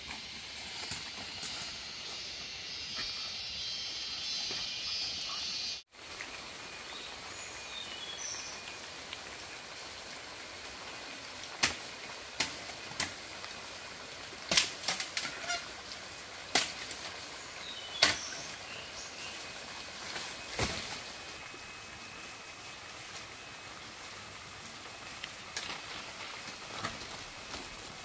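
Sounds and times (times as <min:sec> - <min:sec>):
outdoor hiss: 0:00.0 - 0:28.0
faint bird chirps: 0:02.0 - 0:05.8.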